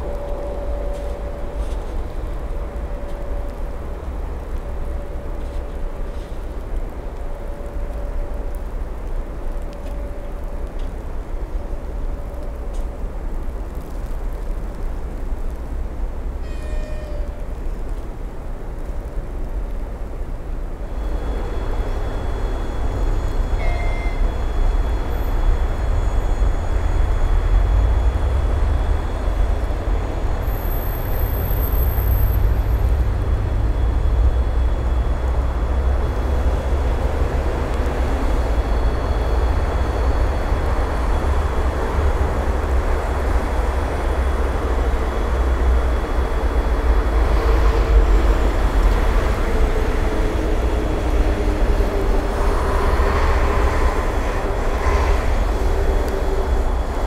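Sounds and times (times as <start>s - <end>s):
train humming tone: 0.0s - 57.0s
train rumbling: 0.0s - 57.0s.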